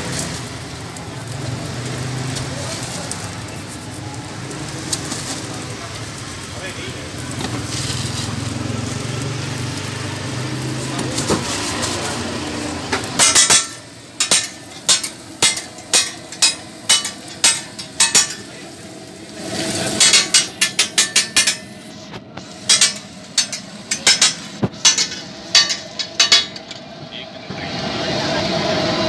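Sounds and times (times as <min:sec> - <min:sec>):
metal spatula clanking on griddle: 0:12.9 - 0:18.7, 0:19.5 - 0:21.8, 0:22.4 - 0:26.9.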